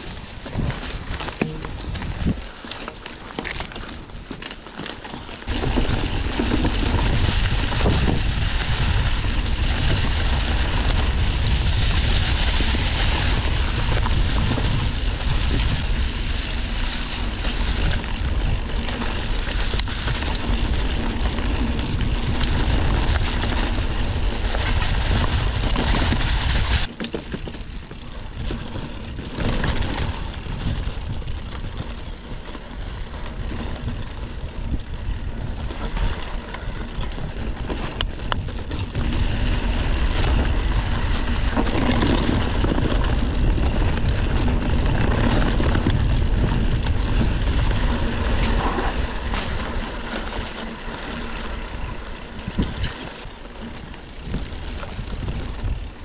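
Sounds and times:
wind buffeting microphone: 0:00.0 - 0:02.6, 0:05.4 - 0:26.9, 0:27.6 - 0:56.0.

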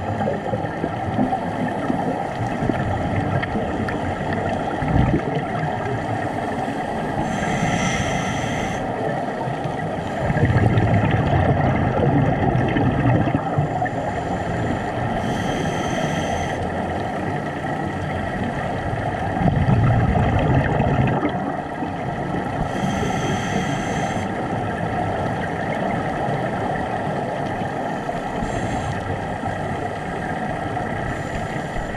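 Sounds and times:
rumble of exhaled bubbles: 0:00.0 - 0:07.8, 0:08.6 - 0:15.4, 0:16.8 - 0:23.3
underwater wash: 0:00.0 - 0:31.9
regulator hissing inhalations: 0:07.1 - 0:08.9, 0:13.8 - 0:16.7, 0:22.7 - 0:24.3, 0:28.4 - 0:29.1.

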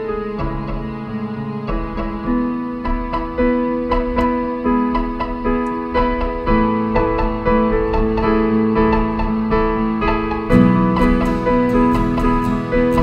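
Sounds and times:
piano music: 0:00.0 - 0:13.0.

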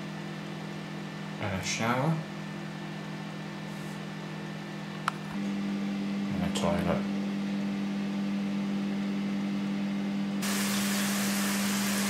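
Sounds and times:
steady low hum: 0:00.0 - 0:10.4
shower spray hissing: 0:10.4 - 0:12.0.

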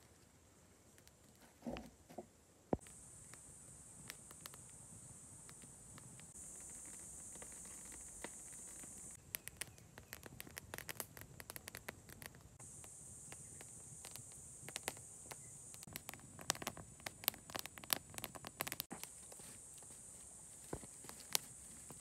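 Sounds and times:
high insect buzz: 0:02.7 - 0:22.0
campfire crackling and popping: 0:02.8 - 0:20.0, 0:20.6 - 0:22.0.

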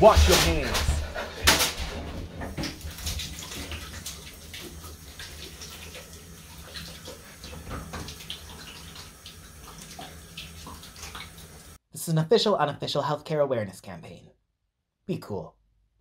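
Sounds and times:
tap water splashing into basin: 0:02.4 - 0:11.6.

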